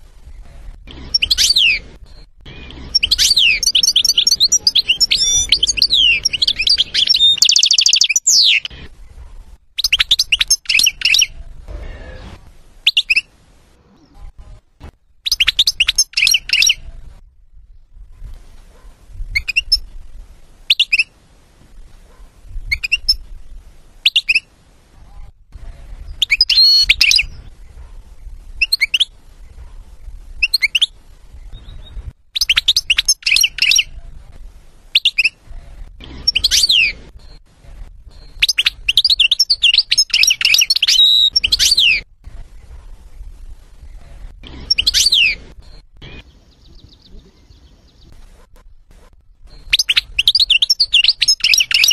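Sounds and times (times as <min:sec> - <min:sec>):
faint low rumble: 0:00.0 - 0:07.6, 0:08.3 - 0:51.5
goldfinch singing: 0:00.9 - 0:08.8, 0:31.6 - 0:34.0, 0:38.1 - 0:42.0, 0:43.9 - 0:48.1, 0:49.4 - 0:51.9.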